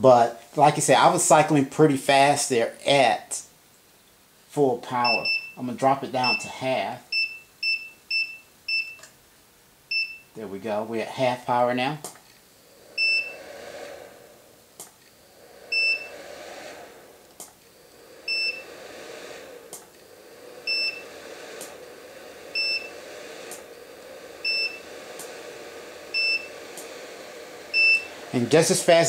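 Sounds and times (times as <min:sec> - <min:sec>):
cooling fan running: 0:09.9 - 0:29.0.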